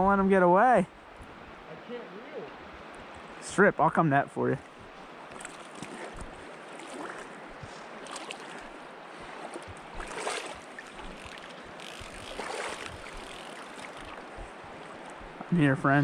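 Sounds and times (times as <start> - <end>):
water splashing around legs: 4.8 - 15.4.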